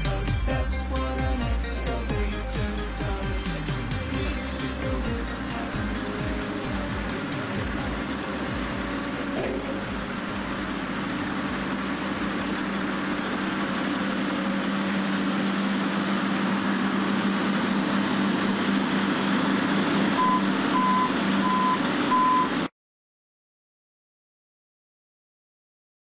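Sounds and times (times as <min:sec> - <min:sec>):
heavy diesel machinery running: 0:00.0 - 0:22.7
backup alarm beeping: 0:20.2 - 0:22.6.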